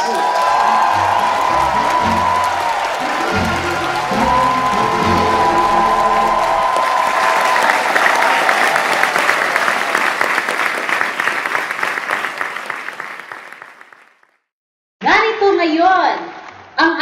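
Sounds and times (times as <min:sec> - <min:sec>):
crowd applause: 0:00.0 - 0:14.4
short music sting: 0:01.0 - 0:07.1.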